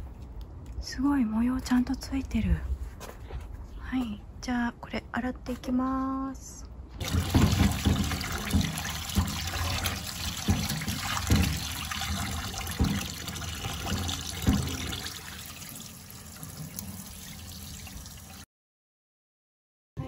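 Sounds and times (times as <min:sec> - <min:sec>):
tap water pouring into metal bowl: 0:07.0 - 0:18.4.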